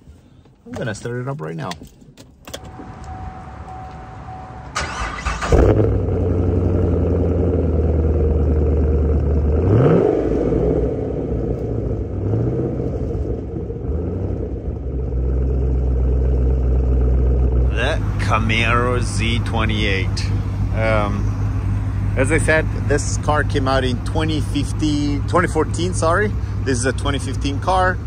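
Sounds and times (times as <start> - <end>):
car engine starting and idling: 0.0 - 28.0
engine revving: 2.7 - 28.0
starter motor cranking: 4.7 - 5.9.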